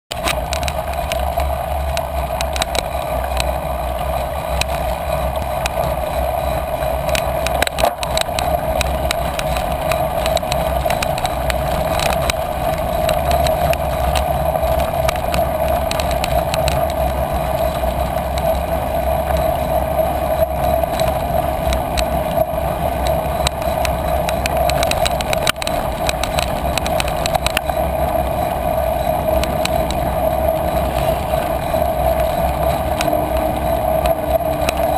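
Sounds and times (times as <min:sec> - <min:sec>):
bicycle clicks and rattles: 0:00.1 - 0:34.9
bicycle tyres rumbling on dirt: 0:00.1 - 0:34.9
wind noise: 0:00.1 - 0:34.9.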